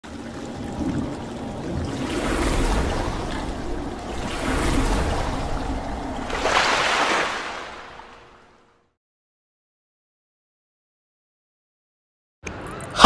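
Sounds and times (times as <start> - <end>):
rushing splashing water: 0.0 - 8.7.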